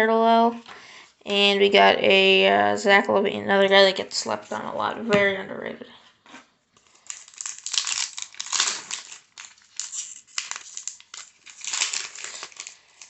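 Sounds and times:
foil wrapper crinkling: 6.8 - 13.0.

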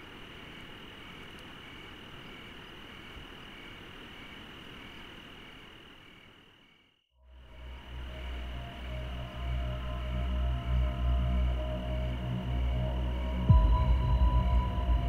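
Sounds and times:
soft insect chirps: 0.0 - 13.5
cricket trill: 0.0 - 15.0
music: 7.2 - 15.0.

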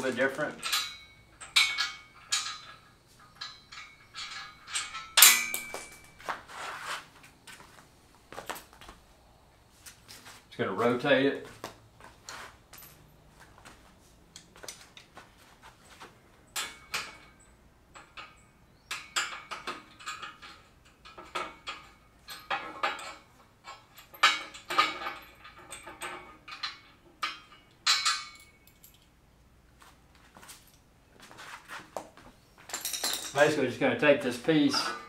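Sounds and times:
metal clicks and clinks: 0.1 - 6.2, 16.5 - 29.2, 32.7 - 33.6.

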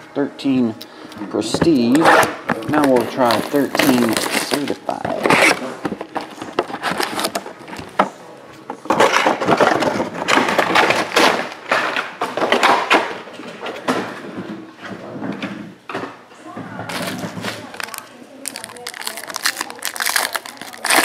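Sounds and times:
plastic wrap crinkling: 2.5 - 7.9, 16.9 - 21.0.

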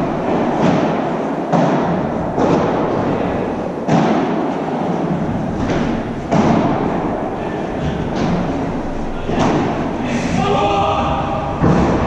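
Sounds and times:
padel ball hits echoing: 5.6 - 7.2.

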